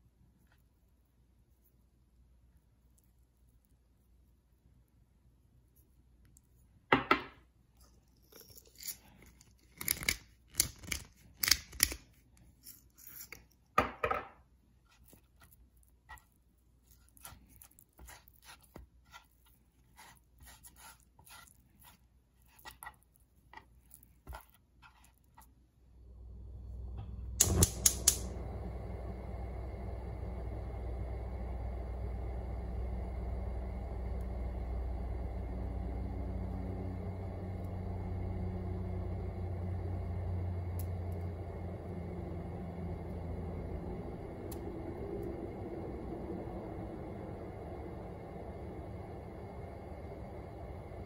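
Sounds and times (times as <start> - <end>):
steady noise: 25.9 - 51.0.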